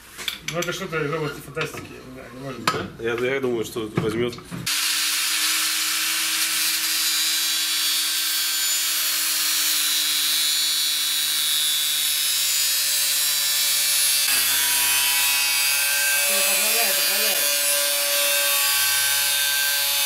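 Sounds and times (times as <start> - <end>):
angle grinder motor whine: 12.4 - 20.0.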